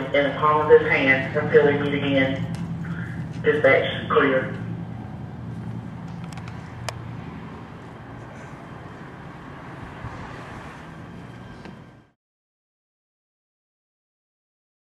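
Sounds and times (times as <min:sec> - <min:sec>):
low engine hum: 0:00.0 - 0:12.2
wind noise on microphone: 0:09.7 - 0:11.0.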